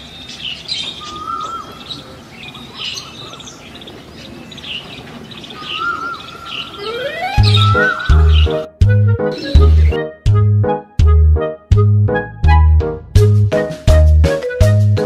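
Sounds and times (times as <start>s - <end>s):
small birds chirping: 0.0s - 8.7s
rising whistle: 6.8s - 8.6s.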